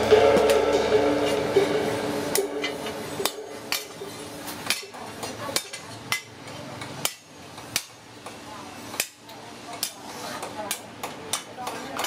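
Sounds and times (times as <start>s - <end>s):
hammer striking metal on anvil: 0.0s - 6.3s, 7.0s - 9.2s.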